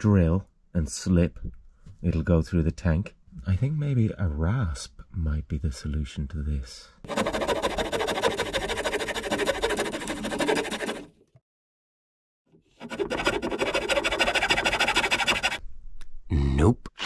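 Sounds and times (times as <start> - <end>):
rasp scraping wood: 7.1 - 11.1, 12.8 - 15.6.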